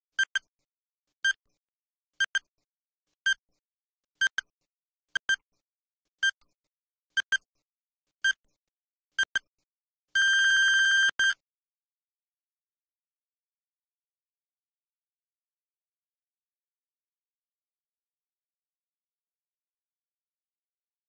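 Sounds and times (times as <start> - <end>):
short electronic beeps: 0.2 - 0.5, 2.2 - 2.5, 5.2 - 5.4, 7.2 - 7.5, 9.2 - 9.5, 10.2 - 11.4
long steady beep: 10.2 - 11.4.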